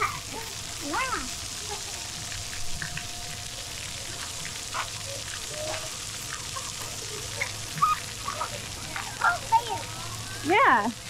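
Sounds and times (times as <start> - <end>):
water jets spraying onto ground: 0.0 - 11.0
distant children crying out: 5.4 - 10.4.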